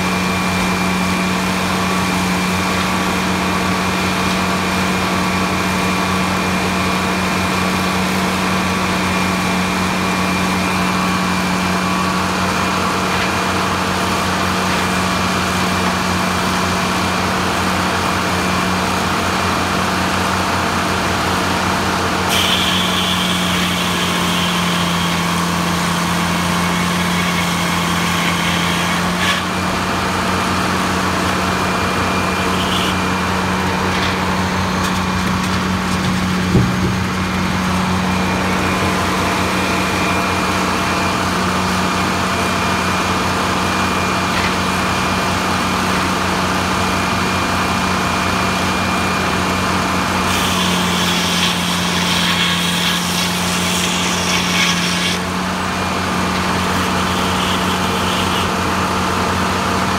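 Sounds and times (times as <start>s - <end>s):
sawmill humming: 0.0s - 59.9s
saw blade whine and hiss: 21.7s - 34.7s, 50.0s - 59.2s.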